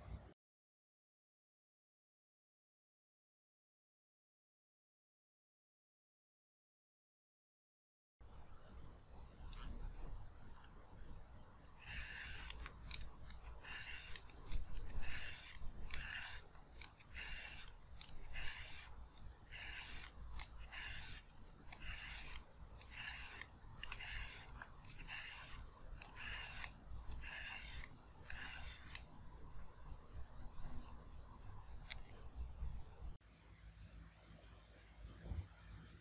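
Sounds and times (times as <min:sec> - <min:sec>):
peeler scraping a carrot: 0:11.8 - 0:29.4.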